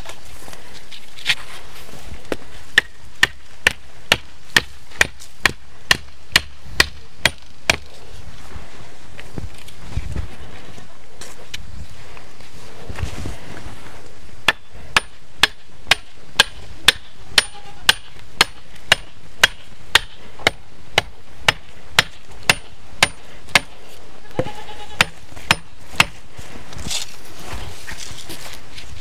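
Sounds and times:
hand tool striking hard surface: 0:14.5 - 0:23.8, 0:25.0 - 0:26.2.

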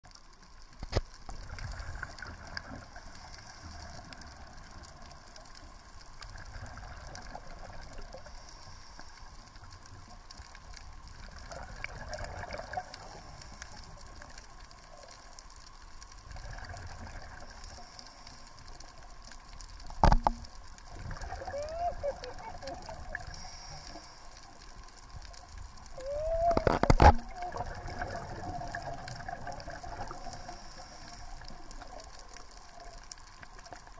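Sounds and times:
exhaled bubbles rushing: 0:11.2 - 0:13.2, 0:20.0 - 0:23.5, 0:25.9 - 0:32.3.

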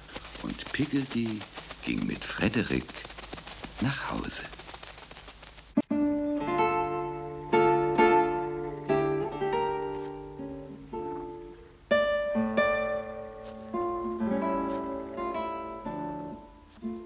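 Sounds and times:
plucked acoustic guitar: 0:05.8 - 0:17.0.

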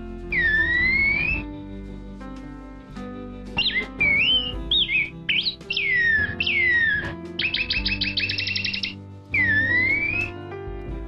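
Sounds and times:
background music: 0:00.0 - 0:11.0
bird singing whistled phrases: 0:00.3 - 0:01.4, 0:03.6 - 0:10.3.

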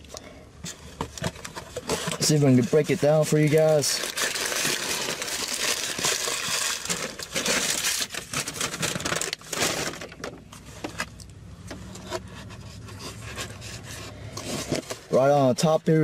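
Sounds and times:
paper wrapper crinkling: 0:01.1 - 0:10.2.

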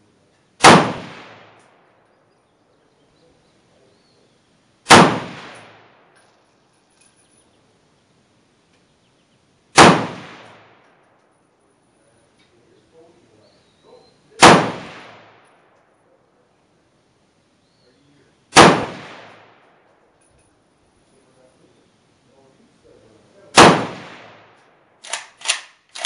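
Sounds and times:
rifle shots with echo: 0:00.6 - 0:02.0, 0:04.8 - 0:06.2, 0:09.7 - 0:11.2, 0:14.4 - 0:16.0, 0:18.5 - 0:20.2, 0:23.5 - 0:26.0.

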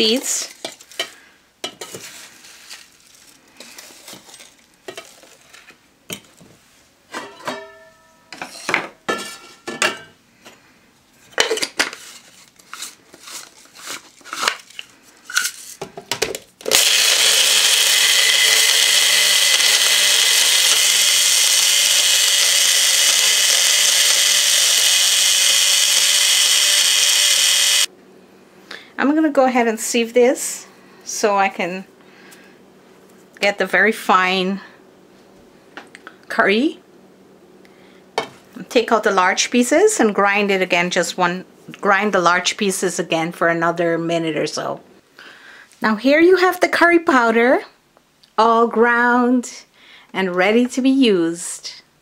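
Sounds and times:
electric grinder grinding spices: 0:16.6 - 0:27.9.

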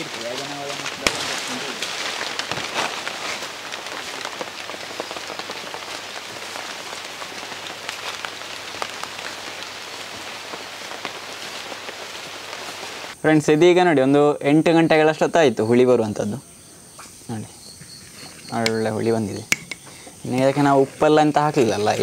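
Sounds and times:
light rain on leaves: 0:00.0 - 0:13.4, 0:17.0 - 0:22.0.

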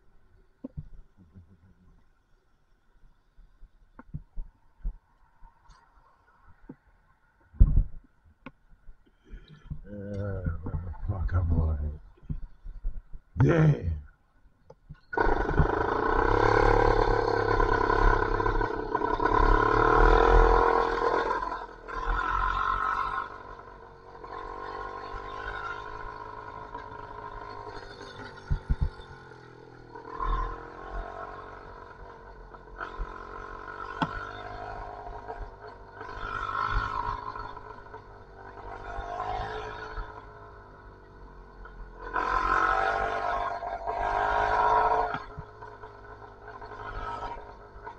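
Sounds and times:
two-stroke engine revving: 0:15.1 - 0:47.9.

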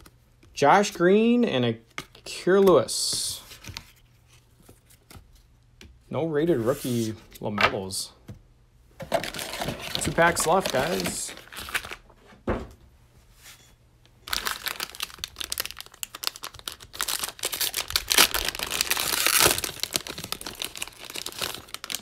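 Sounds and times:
plastic wrapper crinkling and tearing: 0:09.1 - 0:12.1, 0:14.2 - 0:22.0.

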